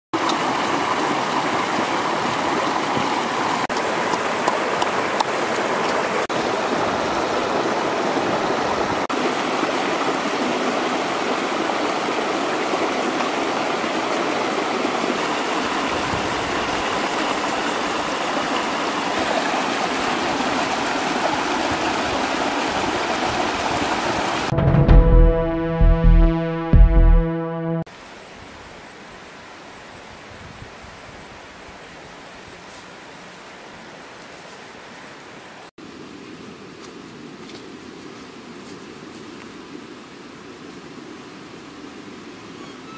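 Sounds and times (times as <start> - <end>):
water rushing over stones: 0.2 - 24.5.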